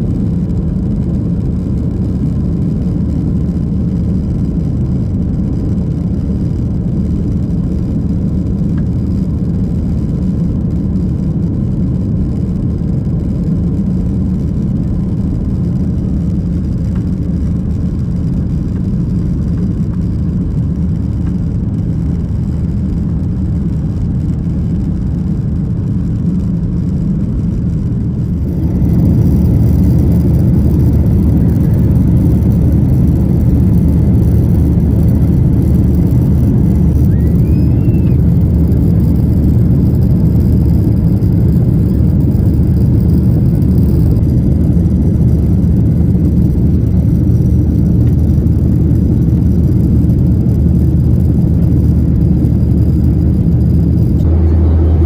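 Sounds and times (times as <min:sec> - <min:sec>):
jet engine roar inside cabin: 0:00.0 - 0:55.0
rushing air: 0:27.6 - 0:49.7.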